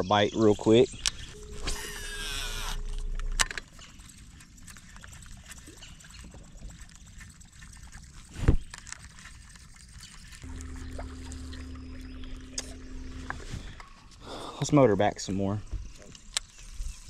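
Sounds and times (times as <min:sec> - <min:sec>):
fishing reel spool whirring: 0:01.3 - 0:03.9, 0:10.4 - 0:13.7
light water sounds: 0:02.8 - 0:13.9.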